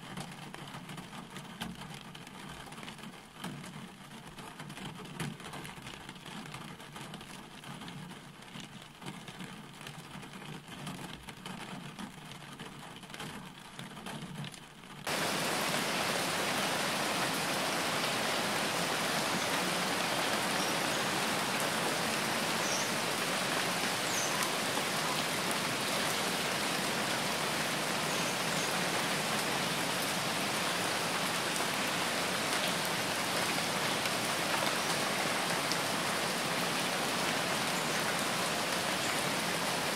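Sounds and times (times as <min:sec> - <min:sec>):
heavy rain on windshield: 0:00.0 - 0:39.9.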